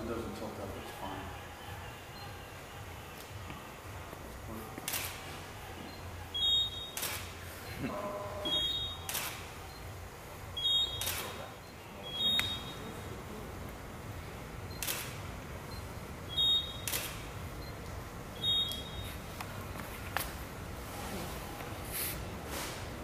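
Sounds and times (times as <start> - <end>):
camera shutter click: 4.8 - 5.2, 6.8 - 7.3, 9.0 - 9.5, 10.9 - 11.4, 14.8 - 15.2, 16.7 - 17.3
camera beep: 5.8 - 7.3, 8.1 - 10.0, 10.6 - 13.0, 14.7 - 19.2.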